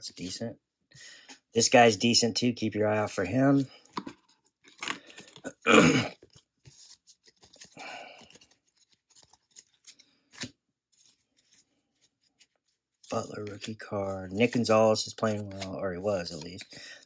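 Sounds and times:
paper rustle: 6.1s - 17.0s.

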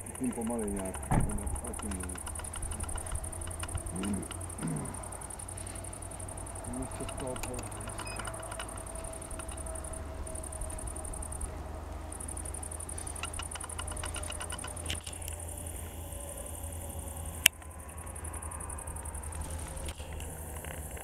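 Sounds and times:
faint ticks: 0.0s - 21.0s
low outdoor rumble: 0.0s - 21.0s
sharp click: 0.1s - 4.7s, 6.6s - 10.5s, 13.1s - 15.5s.

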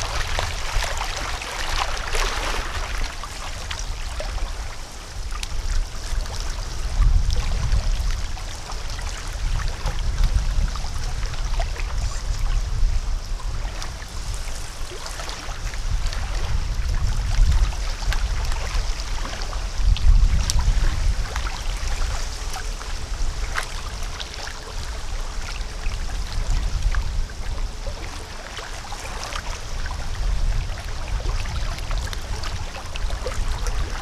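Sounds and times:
small splashes: 0.0s - 5.6s
water lapping at shore: 0.0s - 34.0s.

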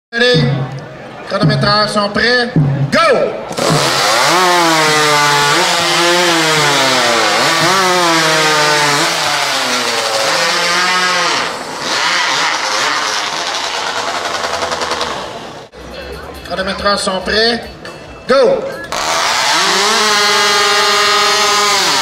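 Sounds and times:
chainsaws cutting logs: 3.5s - 15.7s, 18.9s - 22.0s.

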